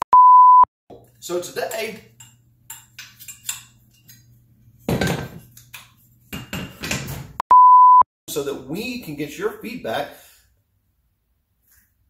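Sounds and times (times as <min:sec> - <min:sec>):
loud beep tone: 0:00.1 - 0:00.7, 0:07.5 - 0:08.1.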